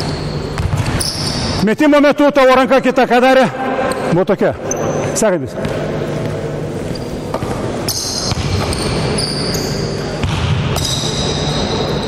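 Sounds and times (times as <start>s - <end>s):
shoe squeaks: 0.0s - 1.6s, 4.6s - 5.2s, 6.8s - 10.2s, 10.8s - 12.0s
basketball bouncing on wooden floor: 5.6s - 6.4s, 7.0s - 9.1s, 10.2s - 11.9s.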